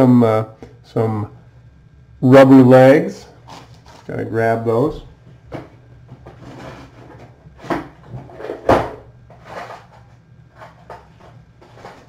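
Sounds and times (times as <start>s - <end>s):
steady low hum: 0.0s - 12.0s
rustles and knocks: 5.4s - 12.0s.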